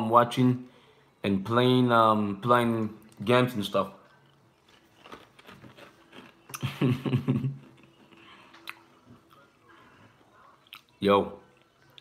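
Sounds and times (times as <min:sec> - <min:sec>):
cereal being crunched and chewed: 0:04.0 - 0:06.8.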